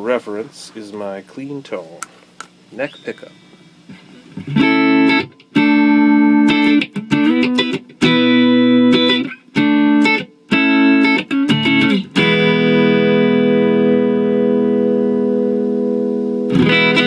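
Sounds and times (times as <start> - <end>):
clean electric guitar chords: 4.4 - 17.0.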